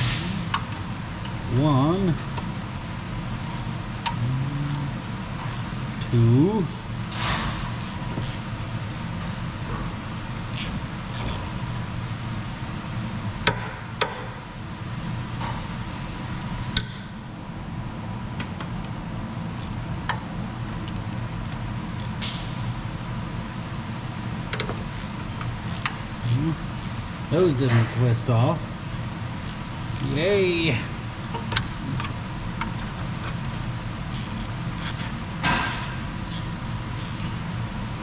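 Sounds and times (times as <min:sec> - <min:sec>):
steady low hum: 0:00.0 - 0:38.0
wrench metallic clicks: 0:03.4 - 0:04.8, 0:05.4 - 0:09.2, 0:10.2 - 0:11.6, 0:20.8 - 0:22.3, 0:24.5 - 0:28.0, 0:28.9 - 0:30.4, 0:33.2 - 0:37.4.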